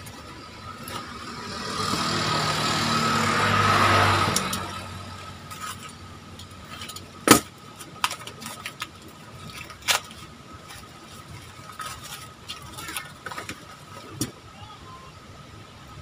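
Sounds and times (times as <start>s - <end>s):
cardboard rustling and crackling: 6.6s - 14.4s.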